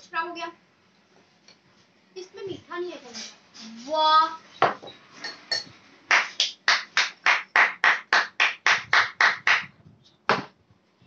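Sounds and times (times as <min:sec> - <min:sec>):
hand clapping: 0:06.1 - 0:09.7.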